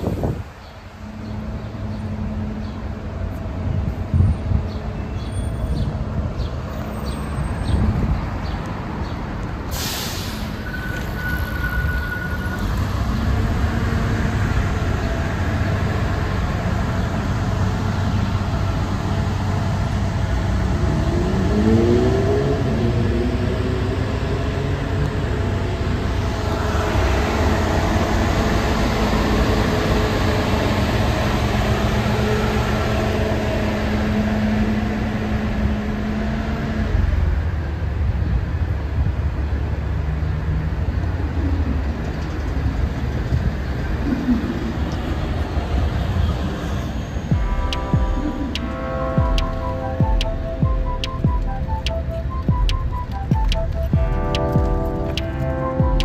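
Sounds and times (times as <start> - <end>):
bus engine running: 0.0 - 56.0
air hiss: 9.7 - 10.6
vehicle pulling away: 9.7 - 38.1
brief high squeal: 9.8 - 12.8.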